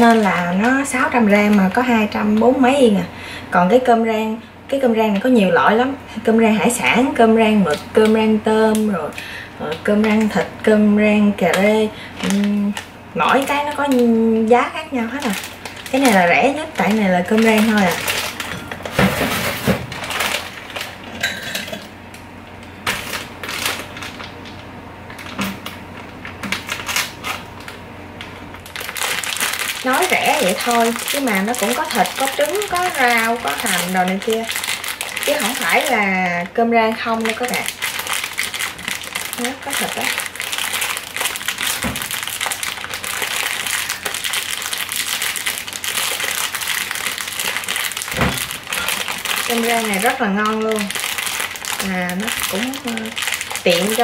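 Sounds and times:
plastic bag crinkling: 0:00.0 - 0:02.6, 0:06.8 - 0:54.0
frozen rice rattling into bowl: 0:15.0 - 0:21.0, 0:28.6 - 0:36.2, 0:36.9 - 0:54.0.

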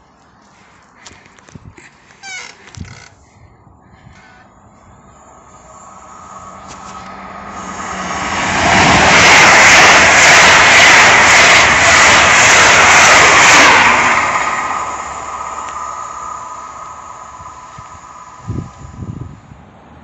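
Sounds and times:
express train passing: 0:04.3 - 0:20.0
beat of train wheels: 0:04.8 - 0:19.4.

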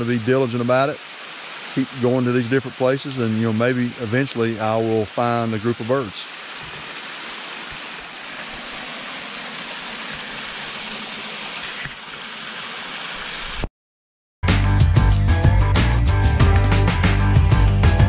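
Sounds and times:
creek trickling over rocks: 0:00.0 - 0:13.6
music: 0:14.4 - 0:18.0.

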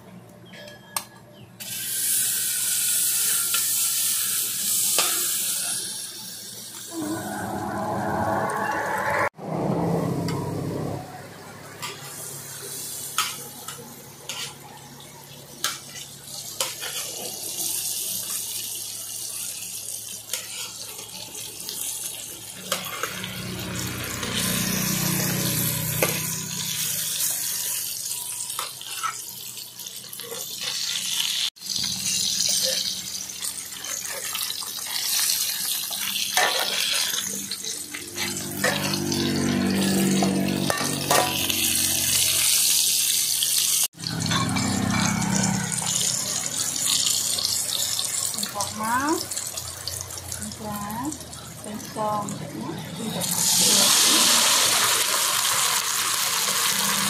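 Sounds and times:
meat sizzling in hot oil: 0:01.6 - 0:07.0, 0:11.8 - 0:52.3, 0:52.9 - 0:57.0
low hum: 0:06.9 - 0:11.7
metal ladle scraping a wok: 0:22.6 - 0:29.4, 0:36.4 - 0:42.8.

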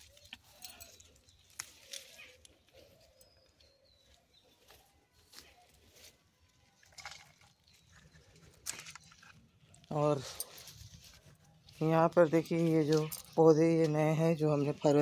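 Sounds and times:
leaves crackling: 0:00.0 - 0:03.0
stems clicking: 0:00.0 - 0:03.5, 0:06.8 - 0:15.0.

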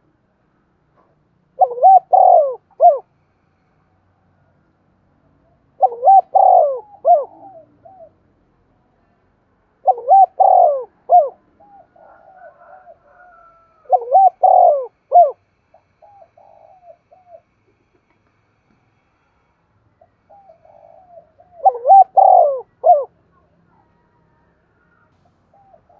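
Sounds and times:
dove cooing: 0:01.6 - 0:03.1, 0:05.7 - 0:08.2, 0:09.8 - 0:15.4, 0:16.0 - 0:17.9, 0:20.3 - 0:23.1, 0:25.5 - 0:25.9.

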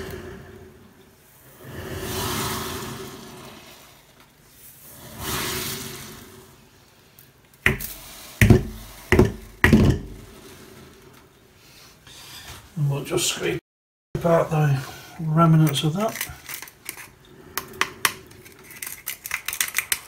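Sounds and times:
cup tapping: 0:07.7 - 0:10.2
granules pouring into jar: 0:18.2 - 0:20.0.

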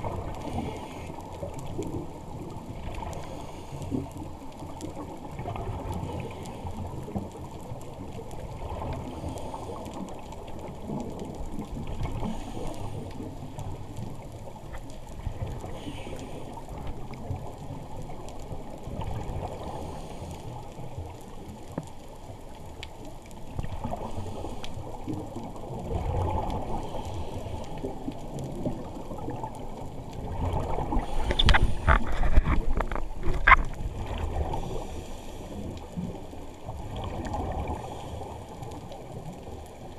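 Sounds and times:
gurgling exhaled bubbles: 0:00.0 - 0:21.6, 0:23.4 - 0:39.9
diver breathing through regulator: 0:15.7 - 0:16.6, 0:30.9 - 0:32.6, 0:34.5 - 0:35.8.

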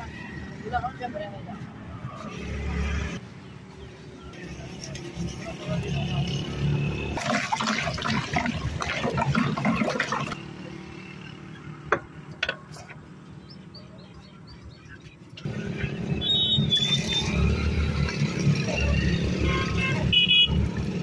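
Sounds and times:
powder pouring into plastic bucket: 0:07.2 - 0:10.4.

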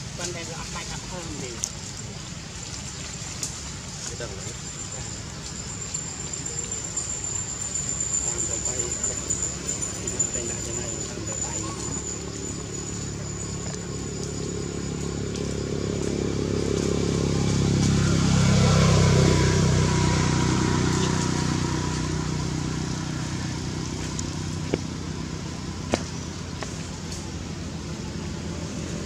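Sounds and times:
vehicle engine passing by: 0:06.5 - 0:29.0.

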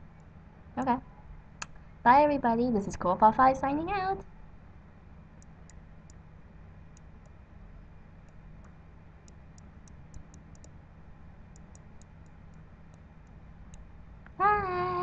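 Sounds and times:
faint low hum: 0:00.0 - 0:15.0
computer mouse clicking: 0:05.4 - 0:06.2, 0:06.9 - 0:07.4, 0:08.2 - 0:10.8, 0:11.5 - 0:13.9.

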